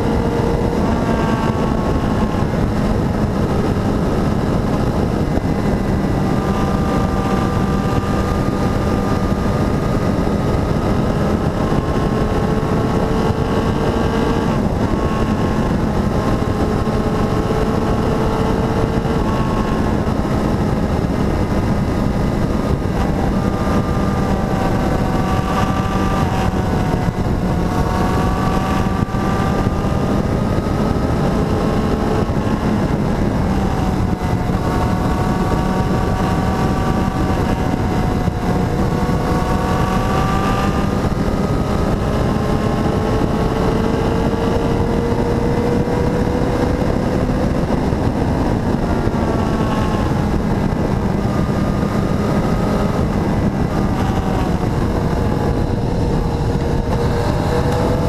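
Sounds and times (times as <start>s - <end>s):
motorcycle engine running: 0.0s - 58.0s
wind noise on microphone: 0.0s - 58.0s.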